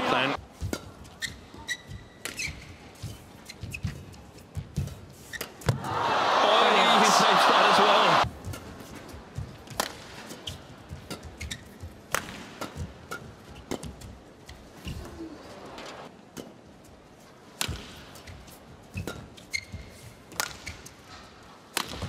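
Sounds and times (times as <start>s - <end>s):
shoes squeaking on court floor: 0.6s - 5.6s, 10.2s - 12.0s, 18.2s - 21.1s
rackets hitting shuttlecock: 11.0s - 14.0s, 17.6s - 18.0s, 21.7s - 22.0s.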